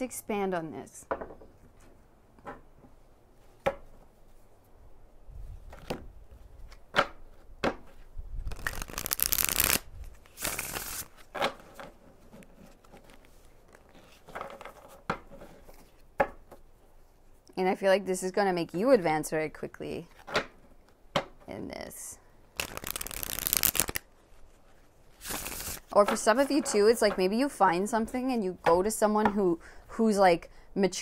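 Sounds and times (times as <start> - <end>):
cards being shuffled: 5.7 - 16.1, 22.6 - 27.2
cards tapping and snapping: 8.5 - 9.8, 22.6 - 24.0.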